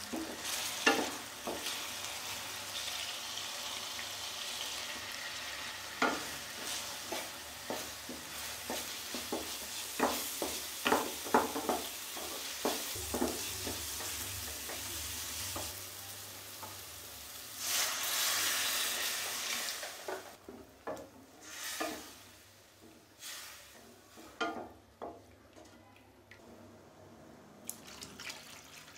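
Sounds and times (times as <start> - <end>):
water hissing in hot pan: 0.0 - 20.4, 21.4 - 24.1
masala sizzling in oil: 0.0 - 24.8
spatula scraping pan: 5.0 - 15.8.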